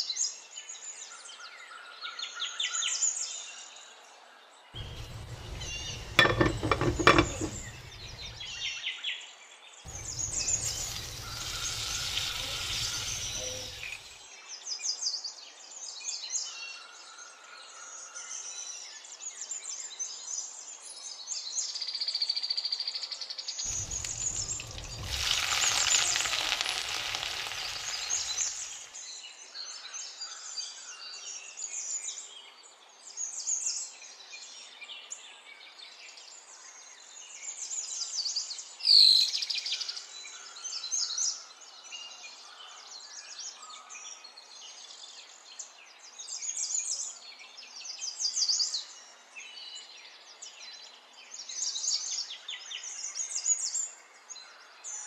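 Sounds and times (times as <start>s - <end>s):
onions sizzling in pan: 4.8s - 8.5s, 9.9s - 14.2s, 23.7s - 29.0s.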